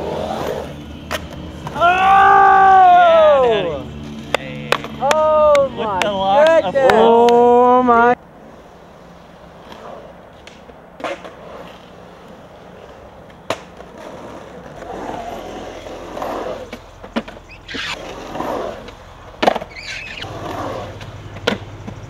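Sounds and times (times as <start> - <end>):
skateboard wheels rolling on concrete: 0.0 - 22.0
skateboard clacking on concrete: 4.0 - 7.5, 9.7 - 12.4, 13.2 - 15.3, 16.2 - 22.0.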